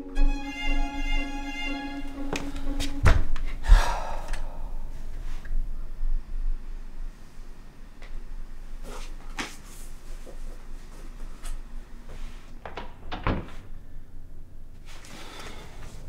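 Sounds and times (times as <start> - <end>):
heavy low thump: 3.0 - 3.9.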